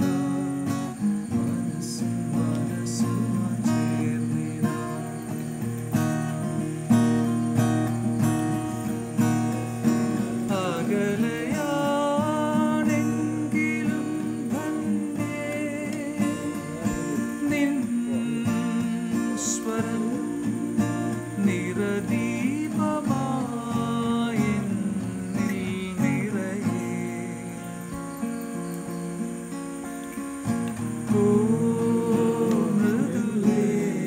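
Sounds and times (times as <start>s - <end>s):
man singing: 0.0s - 5.5s, 10.0s - 28.2s, 30.9s - 34.0s
acoustic guitar chords: 0.0s - 34.0s.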